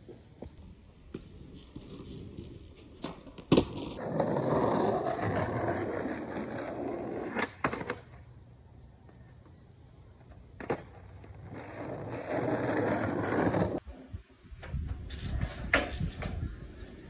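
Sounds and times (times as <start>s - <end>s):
skateboard wheels rolling: 0.0s - 17.0s
skateboard clack: 2.9s - 8.3s.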